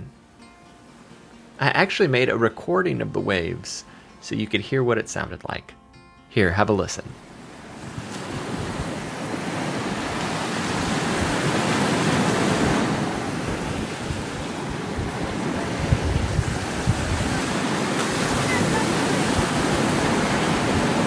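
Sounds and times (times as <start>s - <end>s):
ocean waves on beach: 0.0s - 1.6s, 7.1s - 21.0s.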